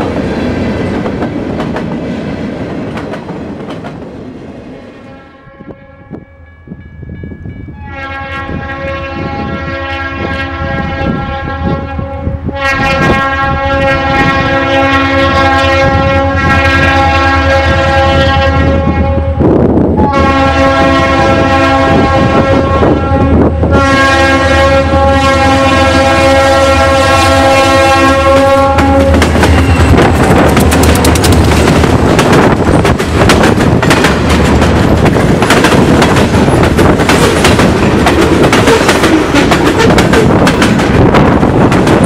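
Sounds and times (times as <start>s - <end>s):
train air horn blasts: 5.0s - 6.5s, 7.7s - 30.3s
locomotive rumble: 15.3s - 42.0s.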